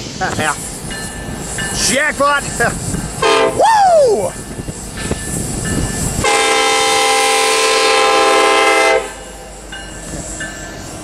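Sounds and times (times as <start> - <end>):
locomotive air horn blast: 3.2 - 3.6, 6.2 - 9.2.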